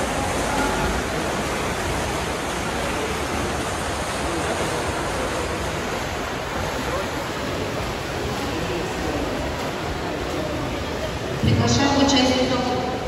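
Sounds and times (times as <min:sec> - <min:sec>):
faint crowd voices: 0:00.0 - 0:13.0
water churned by swimmers: 0:00.0 - 0:13.0.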